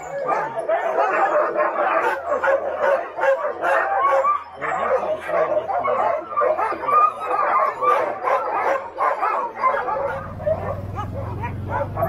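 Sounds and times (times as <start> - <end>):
dogs yipping and barking: 0.0 - 12.0
low motor hum: 10.1 - 12.0.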